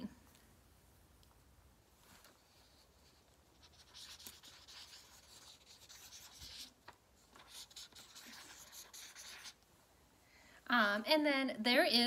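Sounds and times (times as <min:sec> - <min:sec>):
marker scratching on paper: 0:02.4 - 0:09.6.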